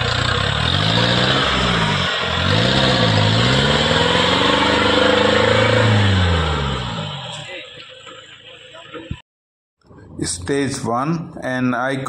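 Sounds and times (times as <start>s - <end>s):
off-road vehicle engine revving: 0.0s - 8.8s.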